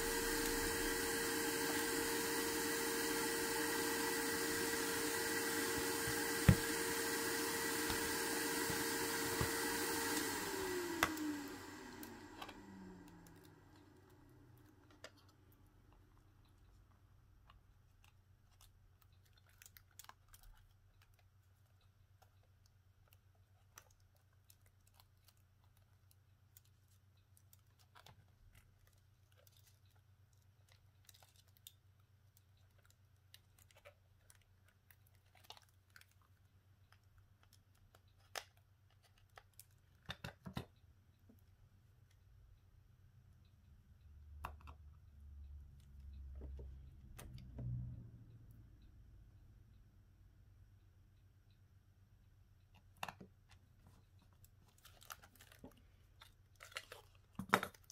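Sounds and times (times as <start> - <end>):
small motor winding down: 0.0 - 14.1.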